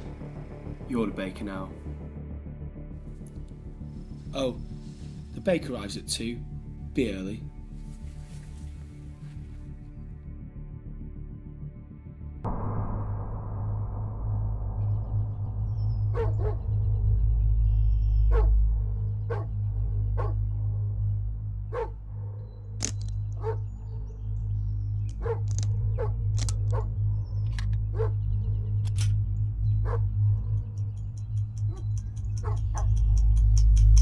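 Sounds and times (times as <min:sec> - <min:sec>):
low drone of music: 0:00.0 - 0:34.0
dog barking: 0:16.1 - 0:16.6, 0:18.3 - 0:18.6, 0:19.3 - 0:19.6, 0:20.2 - 0:20.4, 0:21.7 - 0:22.0, 0:23.4 - 0:24.1, 0:25.2 - 0:26.9, 0:27.9 - 0:28.2, 0:29.8 - 0:30.1, 0:31.7 - 0:33.0.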